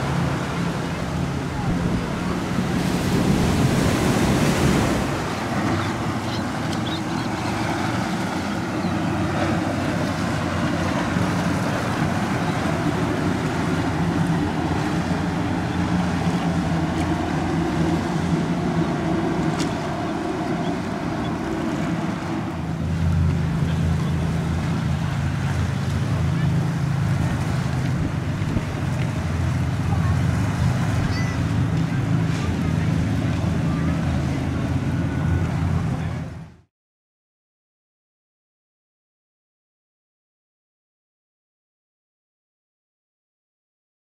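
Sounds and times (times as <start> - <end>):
boat engine drone: 0.0 - 36.7
wake and waves rushing: 0.0 - 36.7
wind buffeting microphone: 27.0 - 36.2.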